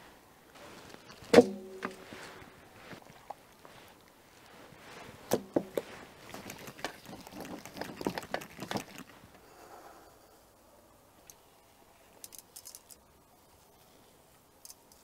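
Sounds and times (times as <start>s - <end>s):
salt sprinkling ticks: 5.2s - 9.4s.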